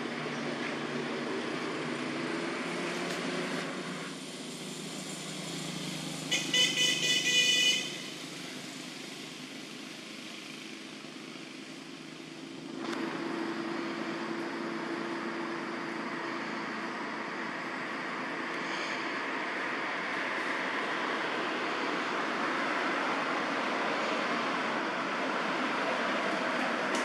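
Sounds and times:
outdoor background noise: 0:00.0 - 0:27.0
vehicle horn honking: 0:06.3 - 0:08.2.

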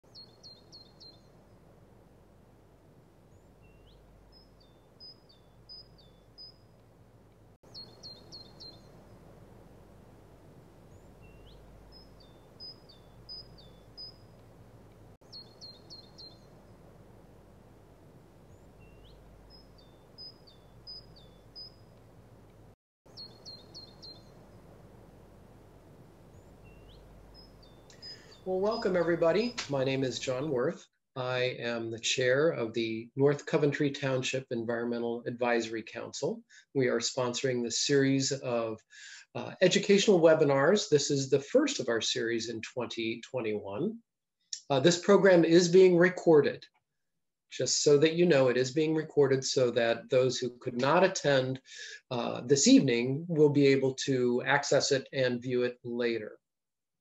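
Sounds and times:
faint songbird song: 0:00.0 - 0:30.7.

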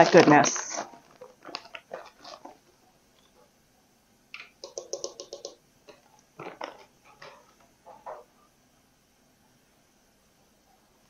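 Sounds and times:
plastic bag crinkling: 0:00.0 - 0:02.7.

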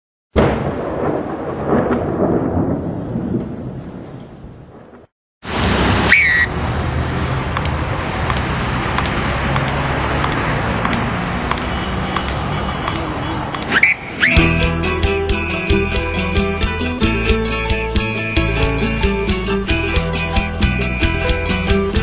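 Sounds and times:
thunder-like crash: 0:00.4 - 0:06.1
street traffic hiss: 0:05.4 - 0:16.3
short rising high tone: 0:13.2 - 0:15.0.

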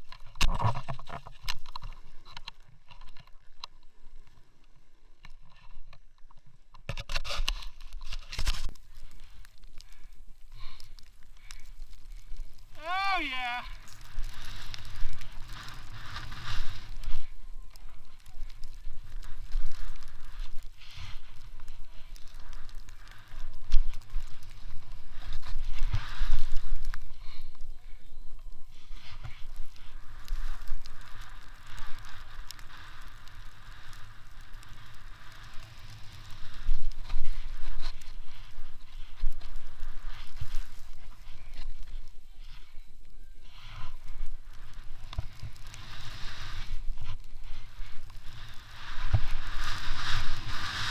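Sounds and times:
snow hissing under skis: 0:12.6 - 0:17.4, 0:19.0 - 0:27.4, 0:28.8 - 0:41.8, 0:43.4 - 0:50.9.

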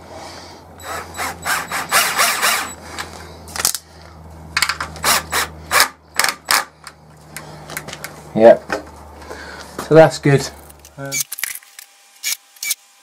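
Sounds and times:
cordless drill driving screw into wood: 0:00.8 - 0:02.8, 0:04.9 - 0:06.7.

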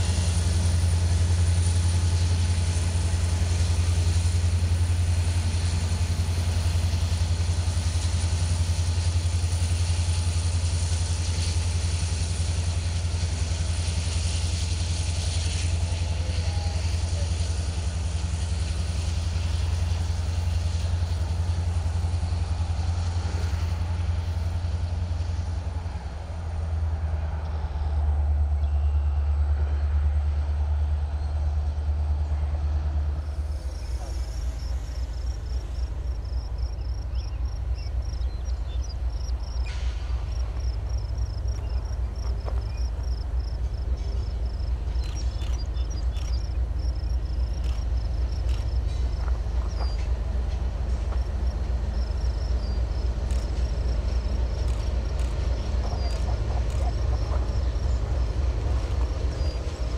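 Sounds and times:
diesel locomotive engine hum: 0:00.0 - 0:59.9.

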